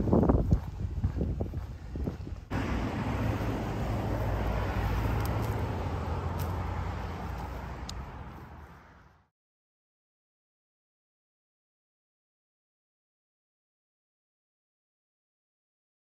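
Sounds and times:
car passing: 2.4 - 9.3.

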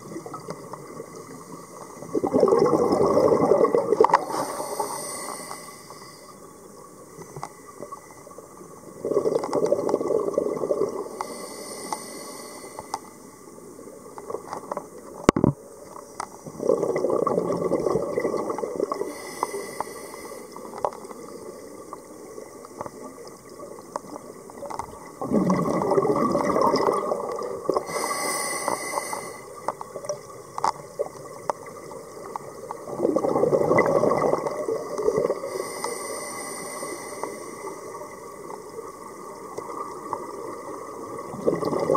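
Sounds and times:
exhaled bubbles underwater: 0.0 - 6.9, 7.7 - 11.5, 16.4 - 19.2, 20.4 - 28.1, 28.7 - 35.8, 37.2 - 41.9
regulator hissing inhale: 4.1 - 6.4, 11.1 - 13.2, 19.0 - 20.7, 27.8 - 29.7, 35.4 - 38.0.

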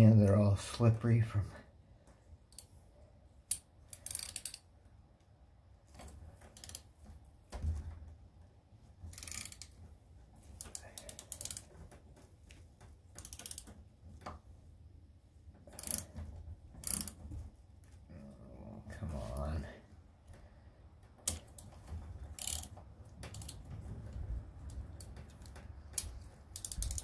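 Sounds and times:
thread tap clicking and scraping metal: 3.4 - 4.7, 9.1 - 9.8, 10.4 - 14.4, 15.6 - 17.4, 21.1 - 27.0.

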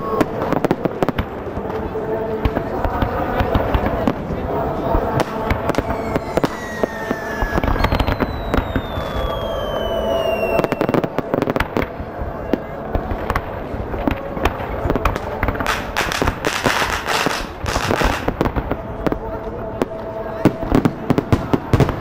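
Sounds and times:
fireworks crackling and popping: 0.0 - 22.0
firework whistles falling in pitch: 5.8 - 11.0.

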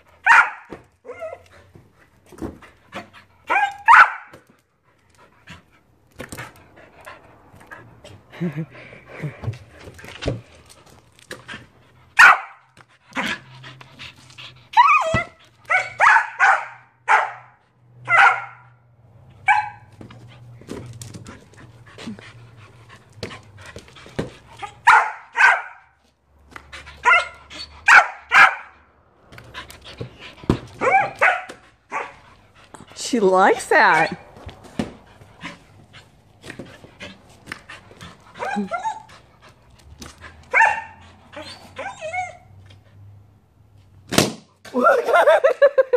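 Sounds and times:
dog barking: 0.2 - 0.7, 3.5 - 4.3, 12.2 - 12.6, 15.7 - 18.8, 19.4 - 19.9, 24.8 - 25.9, 27.0 - 28.7, 30.8 - 32.2, 40.5 - 41.0.

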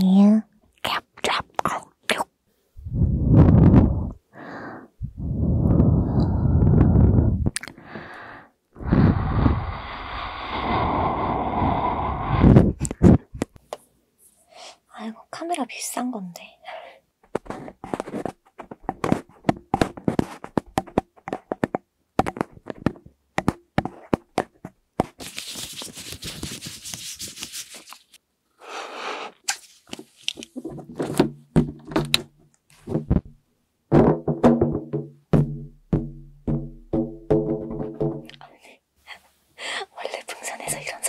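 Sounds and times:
balloon being blown up: 2.8 - 4.2, 5.1 - 7.6, 8.8 - 13.3
elbows tapping on microphone: 17.4 - 25.2, 31.1 - 38.5.

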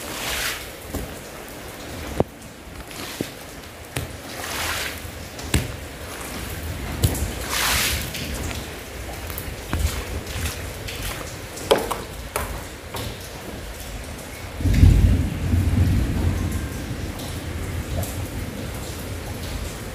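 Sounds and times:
rain hissing: 0.0 - 19.9
sharp knocks: 5.5 - 5.9, 9.7 - 13.2
thunder rumble: 13.5 - 19.9.

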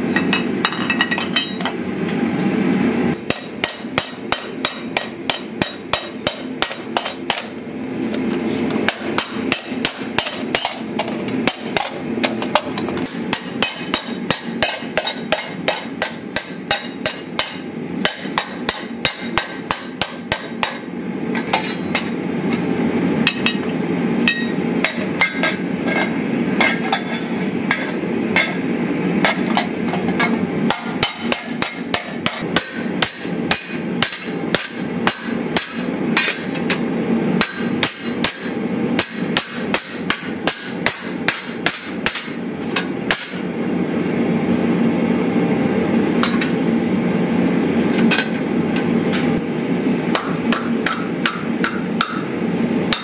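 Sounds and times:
steady low hum: 0.0 - 53.0
hammer striking steel: 0.1 - 1.8, 3.2 - 7.6, 8.9 - 22.2, 23.3 - 23.7, 24.3 - 28.6, 29.2 - 36.8, 37.4 - 43.5, 46.2 - 46.6, 50.1 - 53.0.

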